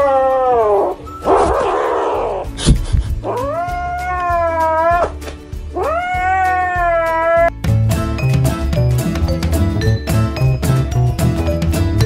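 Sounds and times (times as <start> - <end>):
kitten yowling: 0.0 - 2.5, 3.2 - 7.5.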